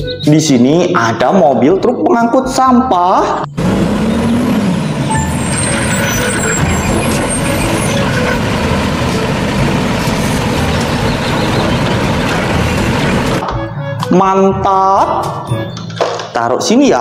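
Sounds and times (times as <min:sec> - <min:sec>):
garbage truck engine running: 0:03.5 - 0:13.4.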